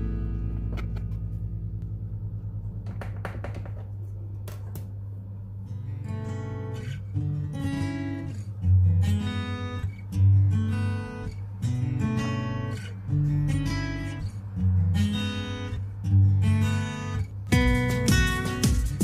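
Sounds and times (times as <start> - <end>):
guitar strumming chords: 5.7 - 19.0.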